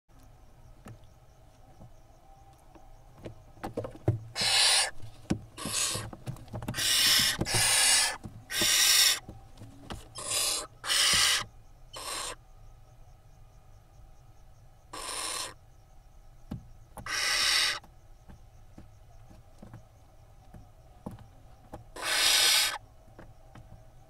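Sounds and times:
owl chicks screeching: 4.3s - 9.3s, 9.9s - 12.4s, 14.9s - 15.6s, 17.0s - 17.9s, 22.0s - 22.8s.

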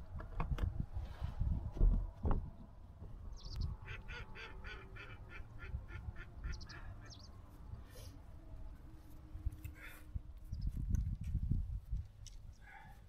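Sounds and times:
duck quacking: 3.8s - 7.2s.

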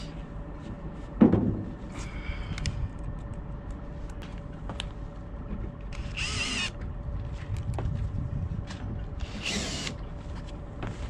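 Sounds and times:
cordless drill whining: 5.9s - 6.8s, 9.2s - 10.0s.

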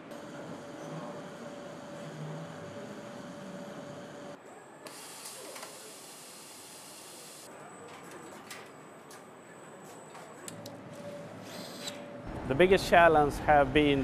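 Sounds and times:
machinery humming: 0.0s - 4.4s.

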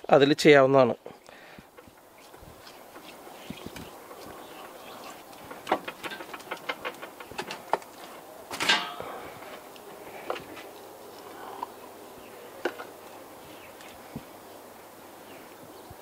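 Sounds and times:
meat clattering on metal tray: 5.4s - 7.8s.

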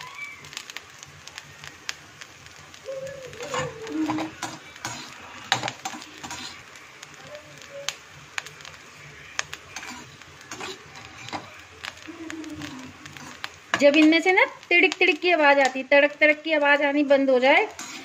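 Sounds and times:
food frying with crackling pops: 0.0s - 18.0s
spoon scraping a pan: 3.4s - 6.6s, 9.7s - 11.6s, 12.6s - 14.2s, 17.6s - 18.0s.

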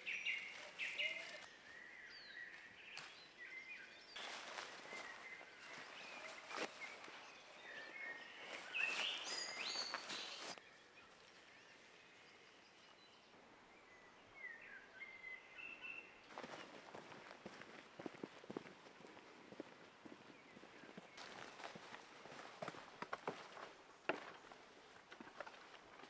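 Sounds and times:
footsteps through long grass: 0.0s - 11.8s, 16.3s - 23.7s
birds singing: 0.0s - 17.2s, 19.8s - 22.1s.

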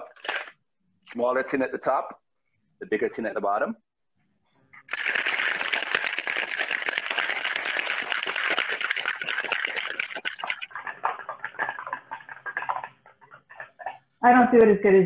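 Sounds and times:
ice rattling in metal shaker: 0.0s - 0.6s, 4.9s - 13.8s.

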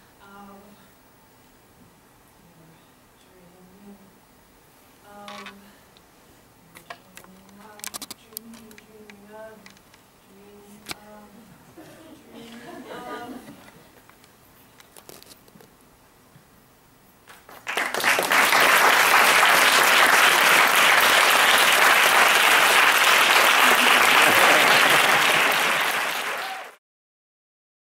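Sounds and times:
audience applauding: 17.3s - 26.8s.

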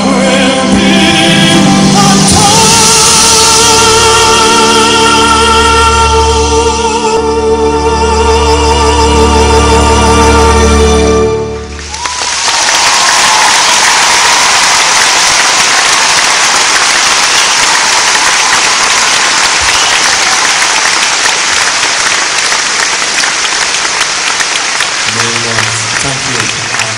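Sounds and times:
music: 0.0s - 12.0s
audience applauding and cheering: 11.0s - 26.9s
high held cheer: 11.7s - 26.9s.

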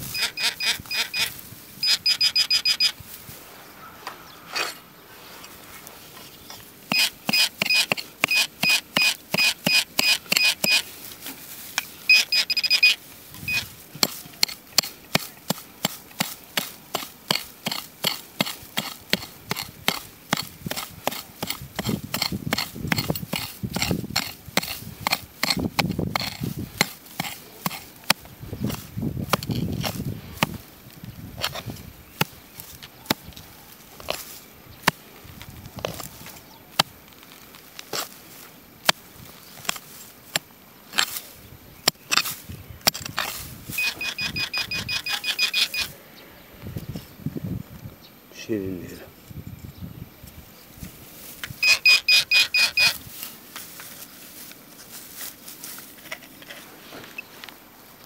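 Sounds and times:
metal detector pulsed beeping: 0.0s - 3.0s, 6.9s - 10.9s, 12.0s - 13.7s, 43.7s - 45.9s, 51.5s - 53.0s.

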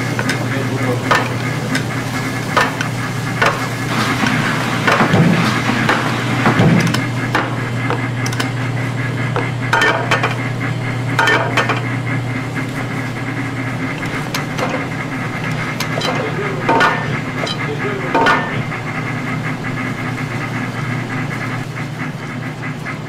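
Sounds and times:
metal pans knocking on stove grates: 0.0s - 8.7s, 9.3s - 12.1s, 13.7s - 18.9s
steady low hum: 0.0s - 23.0s.

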